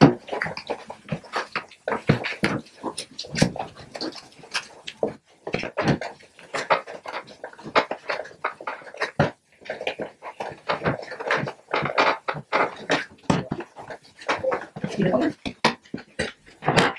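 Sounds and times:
wet clay squelching: 0:00.0 - 0:16.9.

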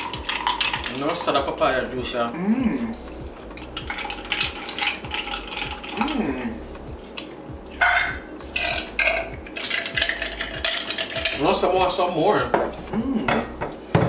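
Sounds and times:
ice clinking in a cup: 0:00.0 - 0:01.4, 0:03.8 - 0:06.1, 0:07.8 - 0:11.5
person humming: 0:02.3 - 0:03.4, 0:05.9 - 0:07.0, 0:12.8 - 0:13.6.

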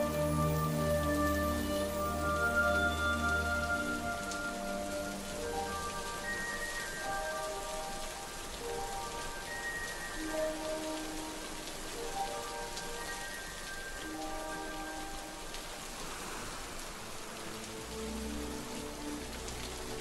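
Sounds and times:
rain falling: 0:00.0 - 0:20.0
soft film-score music: 0:00.0 - 0:20.0.

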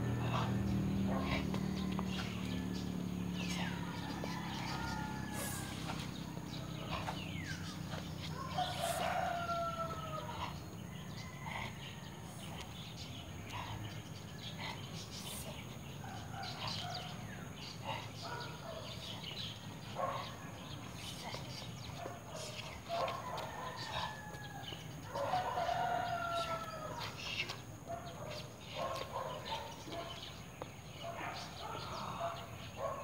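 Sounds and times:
steady low hum: 0:00.0 - 0:32.6
rooster crowing: 0:01.2 - 0:07.6, 0:08.3 - 0:11.7, 0:23.0 - 0:27.2.

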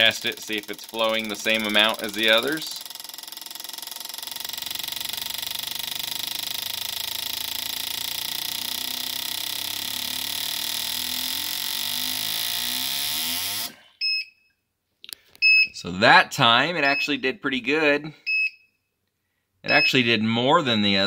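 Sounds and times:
fuel injectors buzzing chatter: 0:00.0 - 0:13.8
short machine beep: 0:19.7 - 0:20.0.

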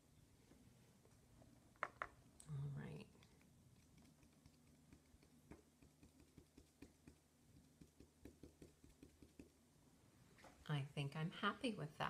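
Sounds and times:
faint low hum: 0:00.0 - 0:12.0
cotton swab tapping paper: 0:03.2 - 0:09.6.

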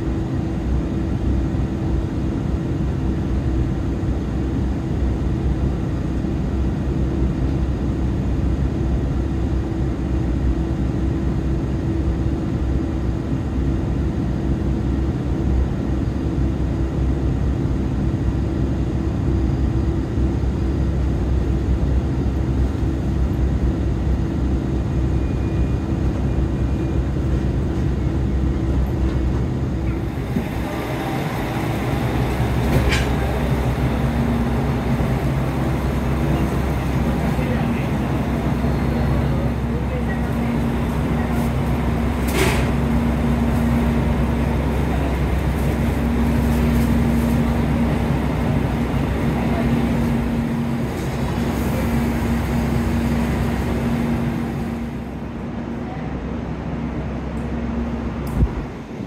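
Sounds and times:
train rumble and hum: 0:00.0 - 0:59.0.

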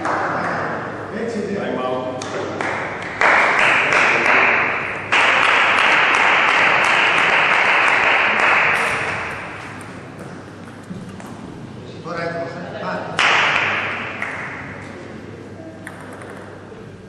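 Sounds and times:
crowd applauding: 0:03.1 - 0:04.5, 0:05.1 - 0:09.5.

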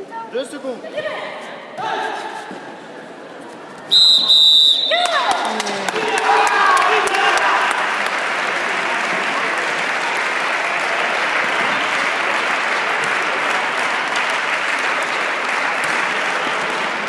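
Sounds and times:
spectators applauding: 0:04.6 - 0:17.0.

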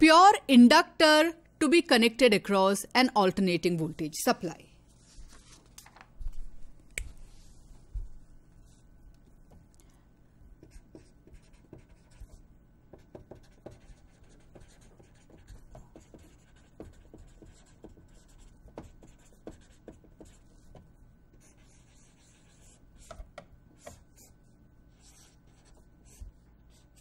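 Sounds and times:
marker writing on paper: 0:10.6 - 0:12.4, 0:13.0 - 0:20.8, 0:21.4 - 0:24.3, 0:24.9 - 0:27.0.

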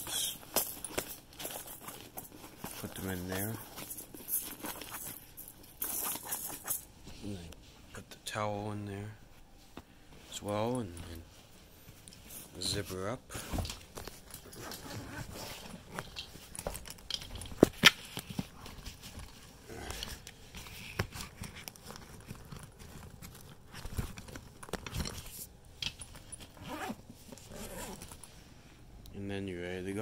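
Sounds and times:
fabric rustling: 0:00.0 - 0:08.0, 0:09.2 - 0:28.6
zipper closing: 0:14.3 - 0:16.8, 0:26.2 - 0:28.3.

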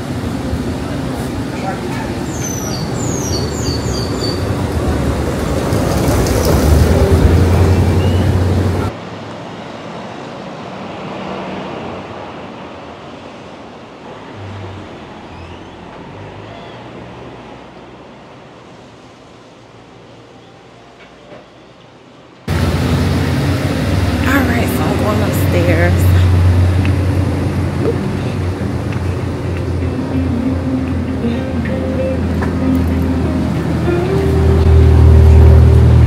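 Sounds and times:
low engine rumble: 0:00.0 - 0:09.0, 0:22.5 - 0:36.0
steady background noise: 0:00.0 - 0:36.0
street traffic noise: 0:00.0 - 0:36.0.

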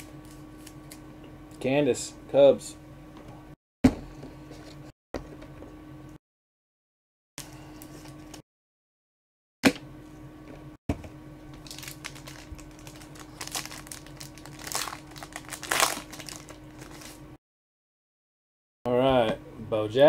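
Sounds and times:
foil wrappers crinkling and tearing: 0:11.6 - 0:17.2.

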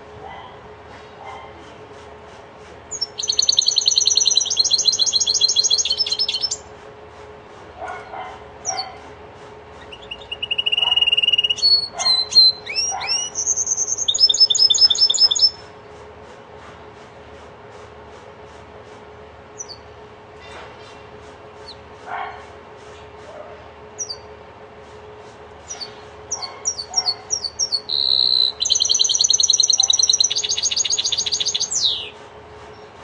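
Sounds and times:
songbird singing trills and whistles: 0:02.9 - 0:06.7, 0:08.6 - 0:09.0, 0:09.8 - 0:15.7, 0:19.6 - 0:19.9, 0:24.0 - 0:24.3, 0:25.7 - 0:32.2.

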